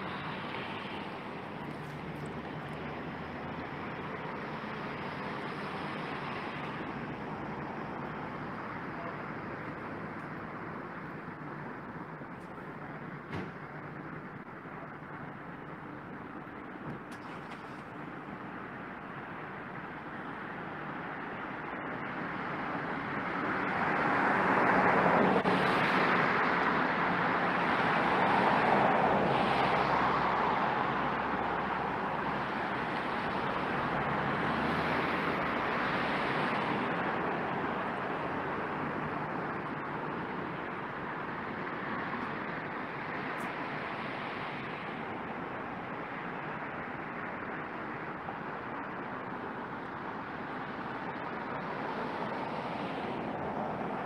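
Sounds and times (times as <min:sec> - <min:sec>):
passing vehicles humming: 0:00.0 - 0:54.0.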